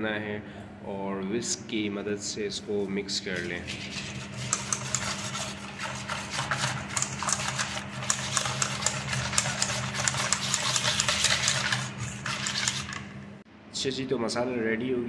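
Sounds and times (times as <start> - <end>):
whisk clicking against metal bowl: 3.7 - 13.2.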